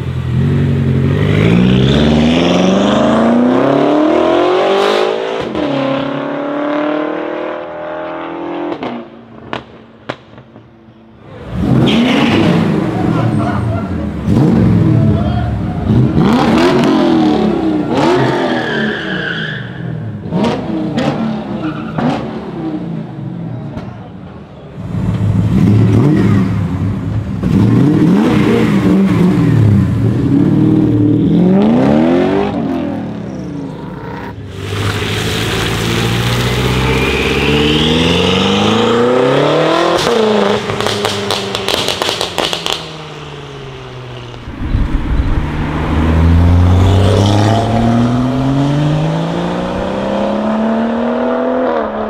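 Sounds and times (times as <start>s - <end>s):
car engine revving hard: 1.0s - 9.0s, 15.9s - 18.6s, 44.6s - 52.0s.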